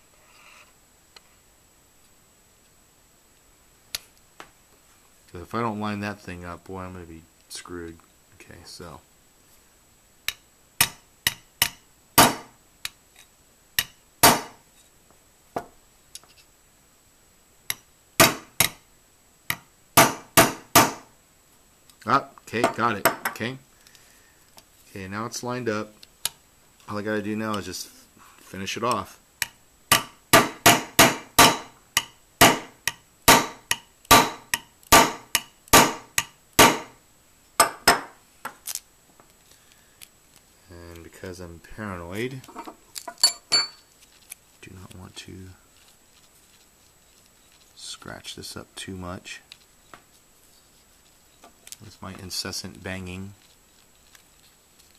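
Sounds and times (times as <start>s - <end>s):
hammer tapping metal pin: 10.3s - 12.4s, 29.4s - 36.9s.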